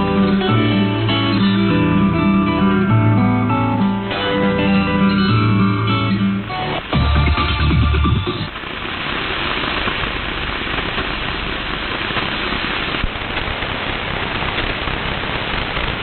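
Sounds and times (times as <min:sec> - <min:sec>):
radio static hiss: 0:03.4 - 0:16.0.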